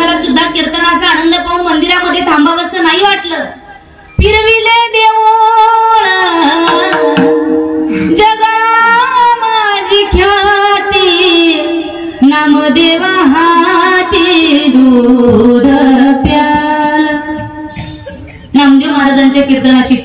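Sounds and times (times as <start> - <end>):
woman singing devotional song: 4.2 - 17.8.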